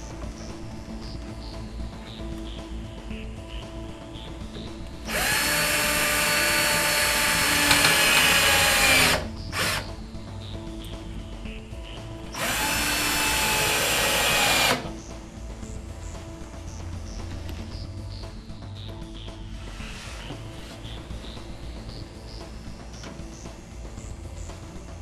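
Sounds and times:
power drill whirring: 5.1 - 9.9, 12.4 - 15.0.

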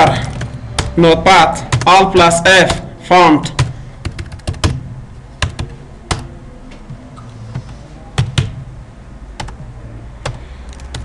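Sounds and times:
keyboard and mouse clicking: 10.2 - 11.0.

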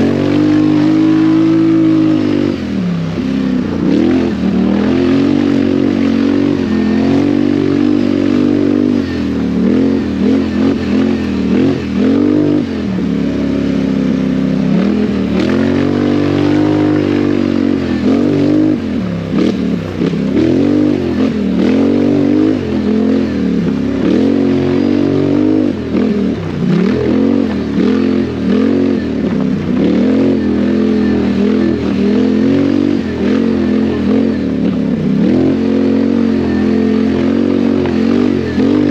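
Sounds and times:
quad bike engine revving: 0.0 - 38.9.

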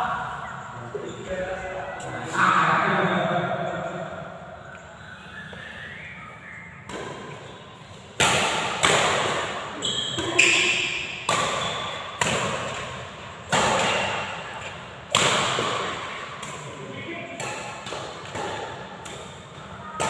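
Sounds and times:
rackets striking shuttlecock: 6.9 - 20.0.

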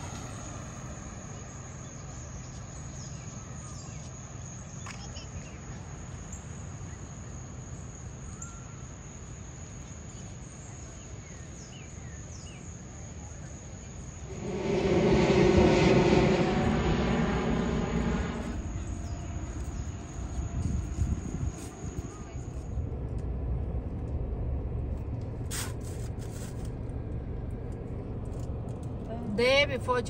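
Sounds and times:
vehicle passing close by: 14.3 - 19.4.

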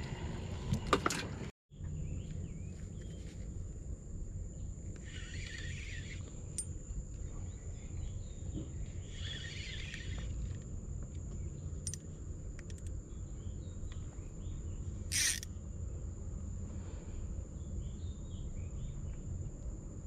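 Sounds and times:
high insect whine: 2.0 - 20.0
birds chirping: 4.5 - 10.6.

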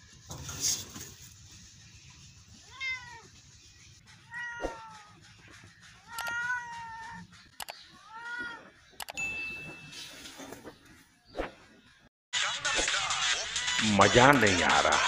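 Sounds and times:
cat meowing: 2.7 - 3.3, 4.3 - 5.2, 6.0 - 7.3, 8.0 - 8.8
sharp clicks: 6.1 - 6.4, 9.0 - 9.2.

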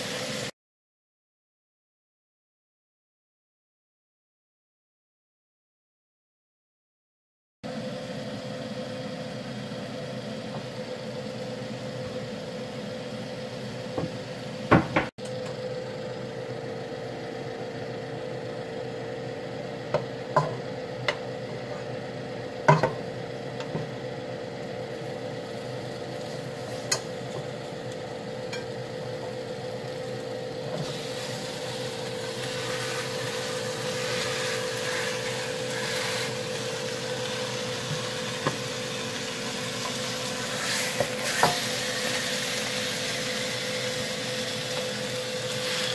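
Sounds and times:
meat sizzling in hot pot: 0.0 - 0.5, 22.6 - 45.9.

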